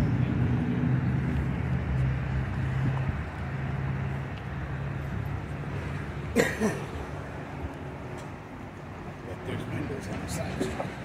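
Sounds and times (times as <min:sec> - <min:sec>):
vehicle engine hum: 0:00.0 - 0:11.0
person coughing: 0:06.4 - 0:06.9.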